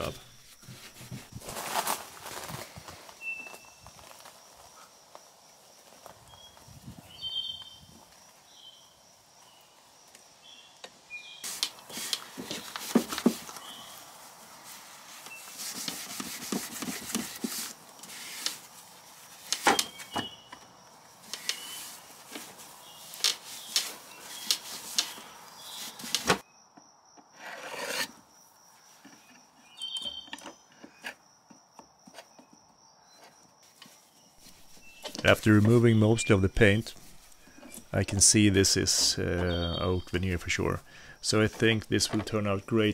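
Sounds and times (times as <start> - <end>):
steel wool scrubbing wood: 11.4 - 20.4.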